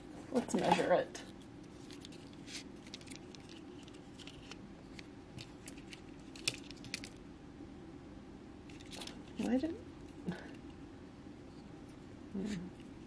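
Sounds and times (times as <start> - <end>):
low room tone hum: 0.0 - 13.0.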